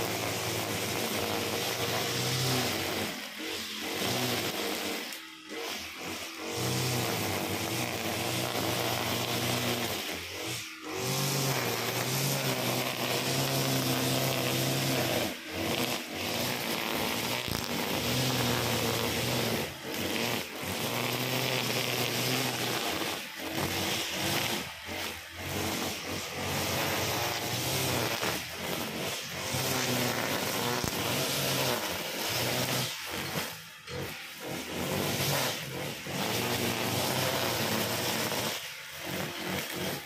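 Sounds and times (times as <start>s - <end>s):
brush cutter engine running: 0.0s - 40.0s
cutting head slicing grass: 0.0s - 40.0s.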